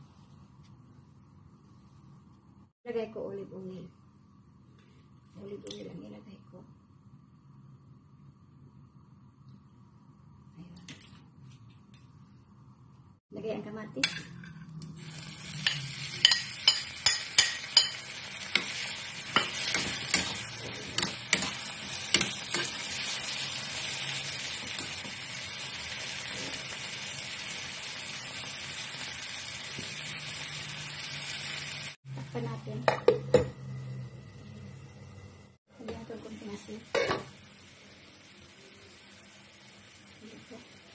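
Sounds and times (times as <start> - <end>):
tomatoes sizzling in oil: 13.9 - 40.9
metal lid clanking on pan: 36.9 - 37.3.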